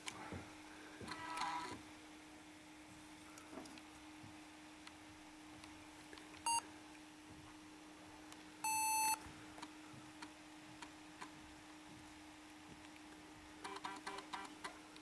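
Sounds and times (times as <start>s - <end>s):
computer speaker beeps: 8.7s - 9.2s.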